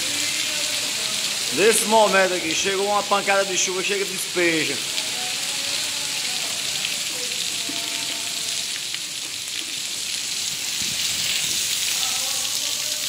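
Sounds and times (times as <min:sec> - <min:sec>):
heavy rain hissing: 0:00.0 - 0:13.0
water pouring off roof edge: 0:00.0 - 0:13.0.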